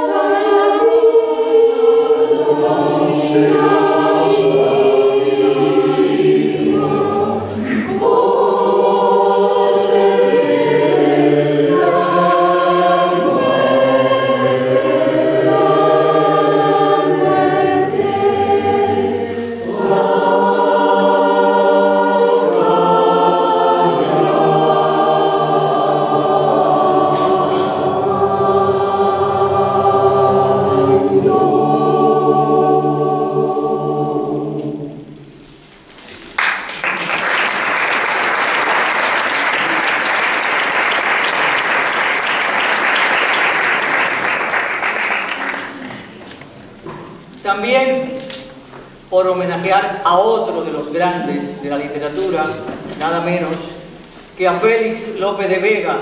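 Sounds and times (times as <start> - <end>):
choir singing sustained chords: 0.0 - 35.5.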